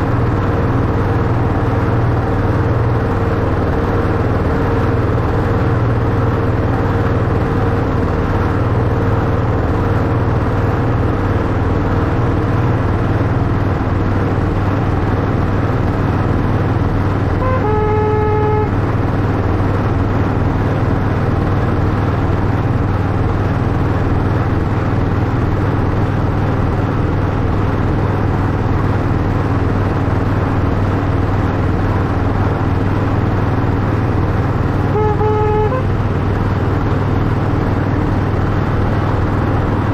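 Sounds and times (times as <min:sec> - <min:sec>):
model locomotive droning: 0:17.1 - 0:19.8, 0:30.5 - 0:36.2
locomotive horn toot: 0:17.4 - 0:19.0, 0:34.8 - 0:36.1.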